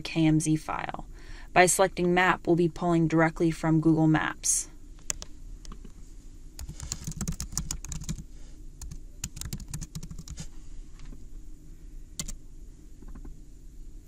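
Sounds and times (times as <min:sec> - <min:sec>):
computer keyboard typing: 0:06.6 - 0:08.2, 0:08.8 - 0:10.4, 0:12.2 - 0:12.4.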